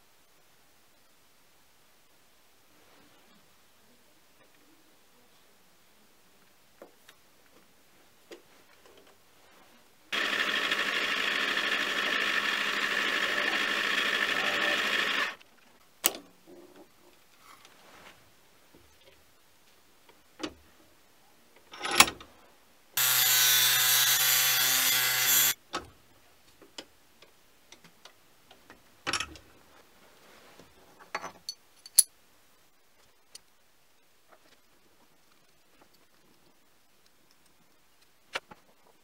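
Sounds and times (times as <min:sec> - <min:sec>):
small electric motor running: 0:10.1 - 0:15.4, 0:23.0 - 0:25.6
small metal parts clicking: 0:31.4 - 0:32.1.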